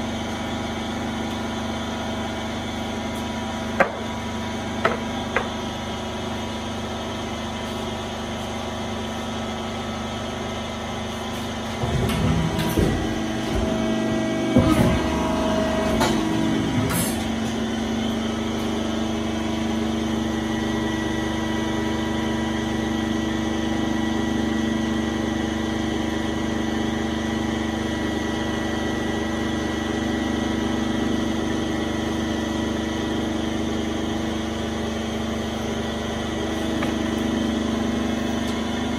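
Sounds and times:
machine hum: 0.0 - 38.9
machine clunks and knocks: 11.6 - 17.6.

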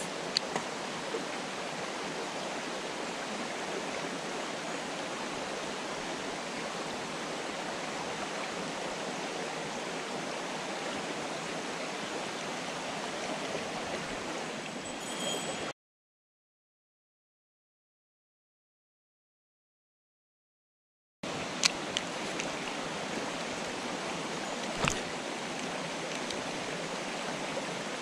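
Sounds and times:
stream water rushing: 0.0 - 15.7, 21.3 - 28.0.

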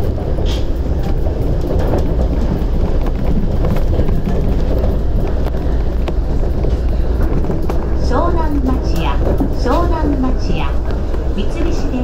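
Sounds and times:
monorail car low rumble: 0.0 - 12.0.

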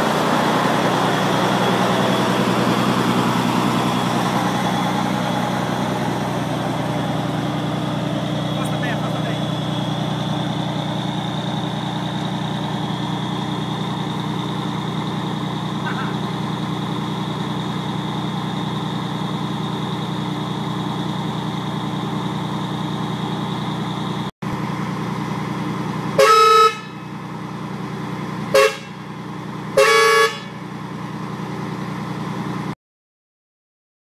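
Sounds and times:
diesel truck engine idling: 0.0 - 32.8
truck horn blasts: 26.1 - 27.2, 28.5 - 30.7.

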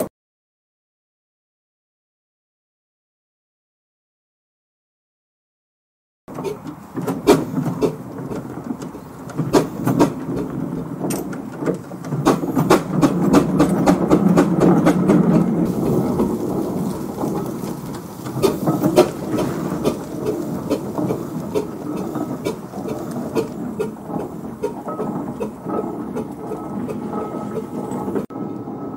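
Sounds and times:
sharp knocks and clanks: 6.3 - 28.9
steam traction engine rumble: 6.3 - 28.9.

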